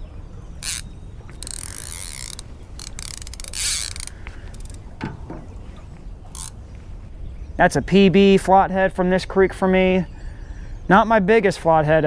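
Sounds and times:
fishing reel ratcheting and whirring: 0.6s - 4.8s, 6.4s - 6.6s
quick clicks: 0.6s - 4.8s.

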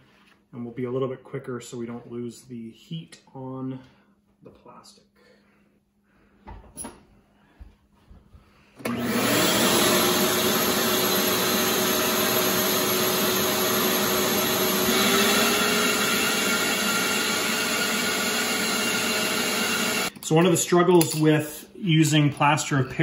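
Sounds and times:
vacuum cleaner motor running: 8.8s - 20.1s.

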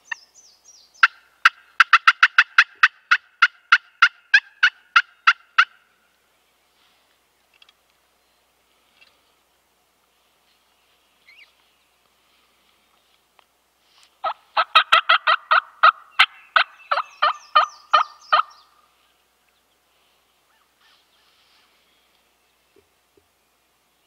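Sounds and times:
turkey call hen yelps: 1.0s - 5.8s, 14.2s - 18.6s.

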